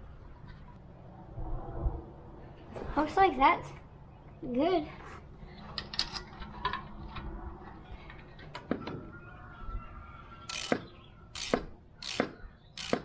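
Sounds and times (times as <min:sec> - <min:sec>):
ratchet wrench clicking: 0:10.5 - 0:10.8, 0:11.4 - 0:13.0.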